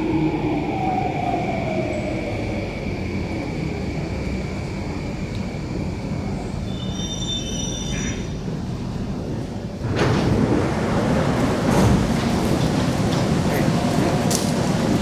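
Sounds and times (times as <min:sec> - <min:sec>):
train low rumble: 0:00.0 - 0:15.0
wheel and brake squeal: 0:06.6 - 0:08.3.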